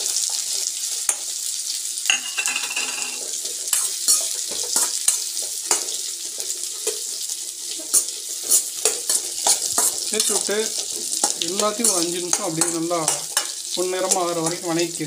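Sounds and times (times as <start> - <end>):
food sizzling in oil: 0.0 - 15.0
spatula scraping a pan: 2.2 - 14.3.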